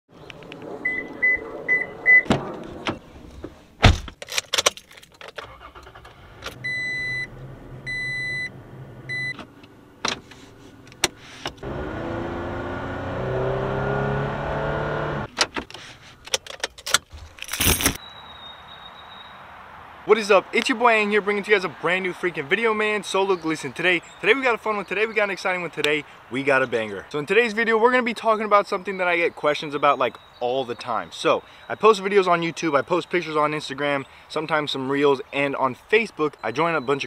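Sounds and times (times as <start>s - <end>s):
car engine starting and revving: 5.5s - 15.3s
car chime beeps: 6.6s - 9.4s
keys jangling: 16.3s - 18.0s.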